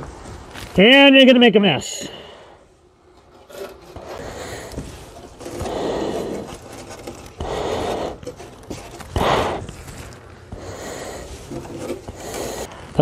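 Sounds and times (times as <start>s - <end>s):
insulation rustling and scraping: 3.1s - 13.0s.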